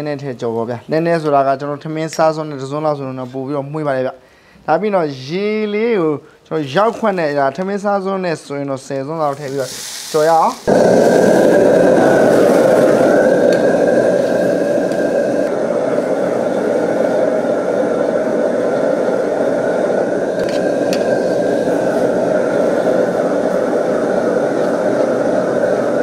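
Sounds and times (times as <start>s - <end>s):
gas burner rushing: 9.3s - 26.0s
noodles stir-frying in wok: 9.4s - 26.0s
faint steady whine: 10.7s - 26.0s.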